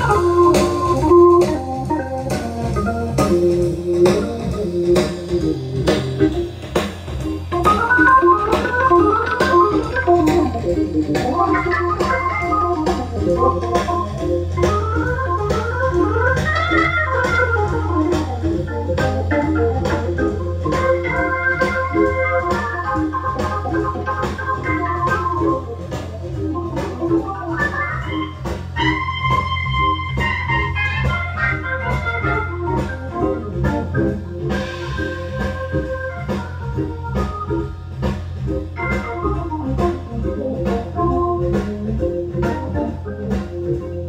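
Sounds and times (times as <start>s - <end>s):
steady low drone: 0.0s - 27.4s
keyboard music with steady beat: 0.0s - 44.0s.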